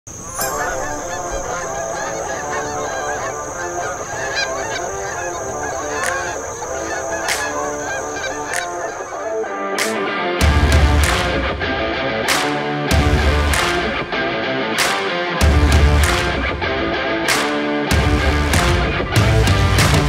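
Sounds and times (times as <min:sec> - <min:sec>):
geese honking: 0:00.1 - 0:11.4.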